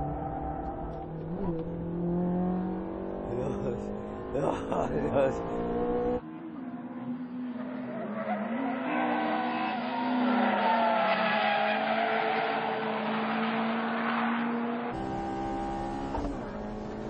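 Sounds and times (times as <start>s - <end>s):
car engine at high revs: 0.0s - 6.2s, 12.4s - 17.0s.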